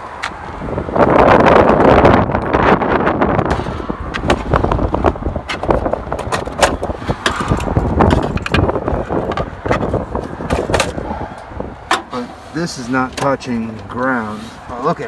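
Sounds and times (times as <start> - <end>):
wind buffeting microphone: 0.0 - 12.7
clicks and rustles of wiring: 5.4 - 12.2.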